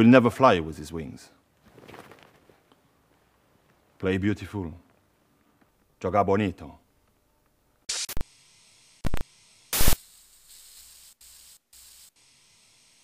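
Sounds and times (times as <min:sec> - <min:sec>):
static hiss bursts: 0:07.8 - 0:13.0.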